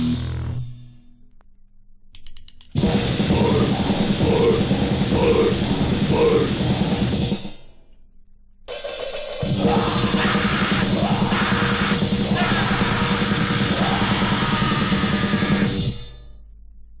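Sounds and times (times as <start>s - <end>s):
drums and bass: 0.0s - 0.8s, 2.2s - 7.8s, 8.7s - 16.3s
distorted guitar: 0.0s - 1.4s, 2.7s - 7.4s, 9.3s - 16.3s
shouted vocals: 9.6s - 15.7s.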